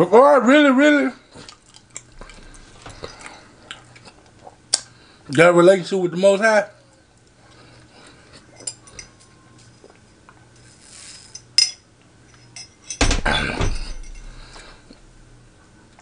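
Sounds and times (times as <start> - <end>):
glass clattering on surface: 11.6 - 15.0.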